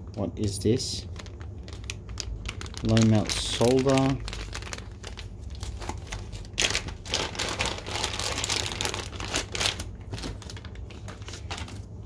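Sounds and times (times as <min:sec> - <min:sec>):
plastic bags crinkling: 0:00.4 - 0:12.0.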